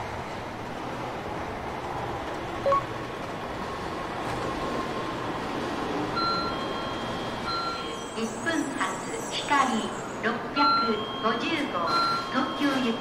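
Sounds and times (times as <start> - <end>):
train running: 0.0 - 13.0
short electronic beep: 2.7 - 2.9.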